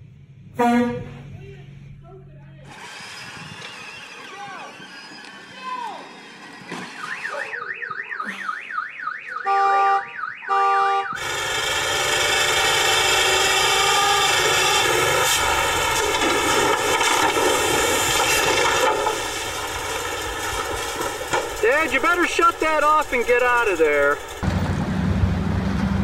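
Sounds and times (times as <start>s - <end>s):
truck engine running: 0.0s - 7.3s, 11.1s - 26.0s
horn blasts: 0.5s - 1.4s, 9.4s - 11.3s
car alarm siren: 6.6s - 11.6s.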